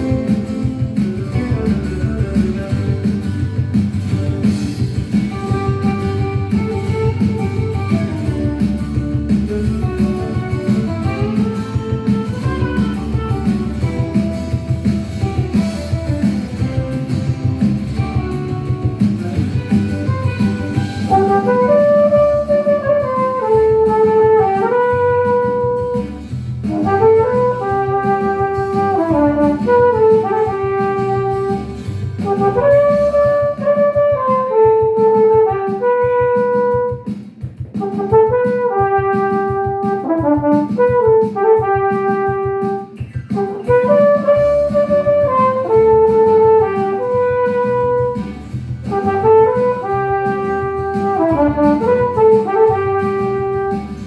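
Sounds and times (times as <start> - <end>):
flugelhorn melody: 0.0 - 1.8, 9.8 - 16.7, 19.6 - 37.1, 37.8 - 54.0
backing track with steady beat: 0.0 - 54.0.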